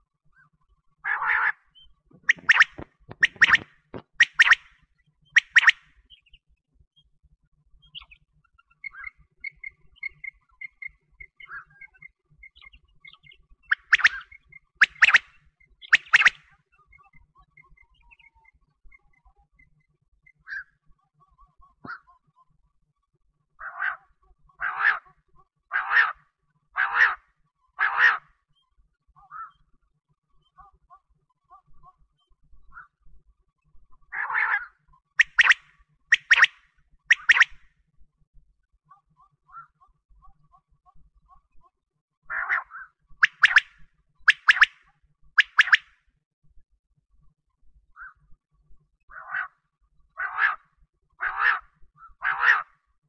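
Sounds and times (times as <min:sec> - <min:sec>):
quail calling: 0:01.0 - 0:04.7, 0:05.4 - 0:05.8, 0:13.7 - 0:16.4, 0:23.6 - 0:26.2, 0:26.8 - 0:27.2, 0:27.8 - 0:28.2, 0:34.1 - 0:37.6, 0:42.3 - 0:43.7, 0:44.3 - 0:44.8, 0:45.4 - 0:45.9, 0:49.1 - 0:49.6, 0:50.2 - 0:50.6, 0:51.2 - 0:52.8.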